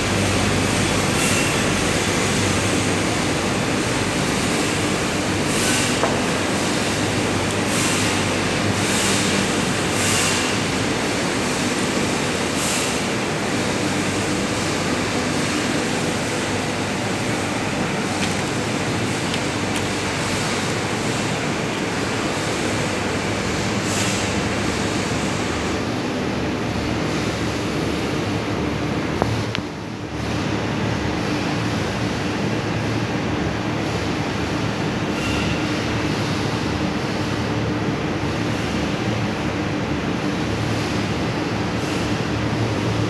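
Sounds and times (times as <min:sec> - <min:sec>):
industrial machinery hum: 0:00.0 - 0:43.0.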